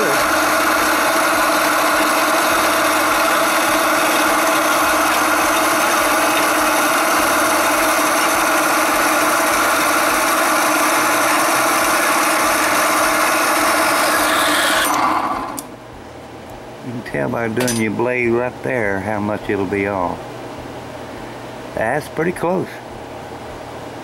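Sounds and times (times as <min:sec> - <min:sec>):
bandsaw cutting metal: 0:00.0 - 0:15.7.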